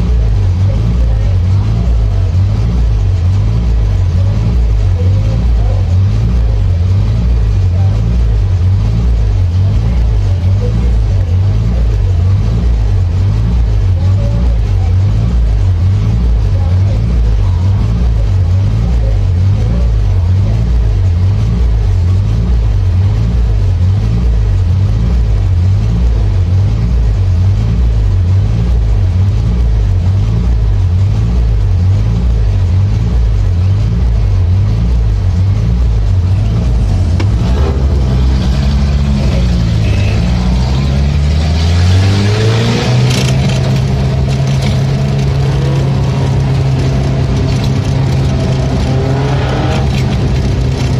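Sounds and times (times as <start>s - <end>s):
race car engine revving: 0.0s - 50.9s.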